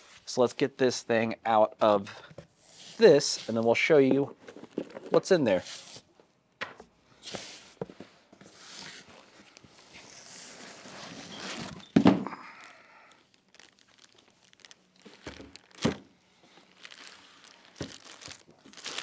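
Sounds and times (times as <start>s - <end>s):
plastic bag crinkling: 12.4s - 19.0s.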